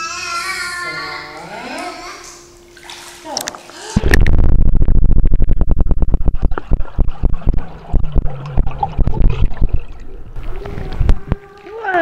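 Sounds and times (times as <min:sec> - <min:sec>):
crackling taps of water bubbles: 0:03.4 - 0:12.0
muffled underwater rumble: 0:03.5 - 0:12.0.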